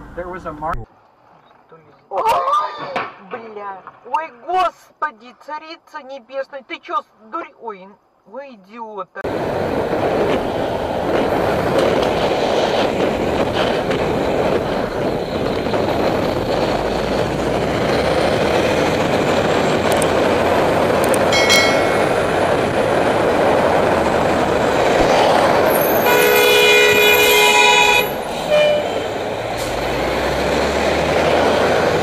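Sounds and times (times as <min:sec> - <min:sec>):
road noise: 0:00.0 - 0:08.3, 0:09.2 - 0:32.0
wind on microphone: 0:09.3 - 0:28.3
vehicle horn: 0:25.8 - 0:29.2.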